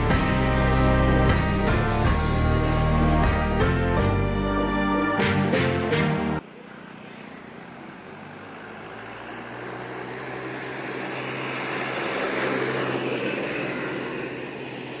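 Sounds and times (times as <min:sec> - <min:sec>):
road vehicle passing: 0:06.4 - 0:15.0.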